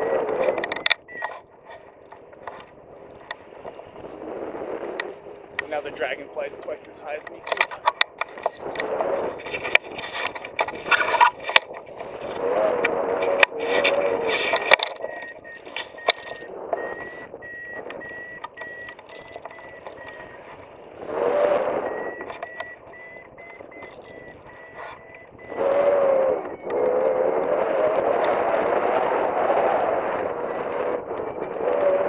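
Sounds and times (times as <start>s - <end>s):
thin electronic tone: 0.0s - 1.4s, 12.6s - 28.1s
wind buffeting microphone: 0.0s - 32.0s.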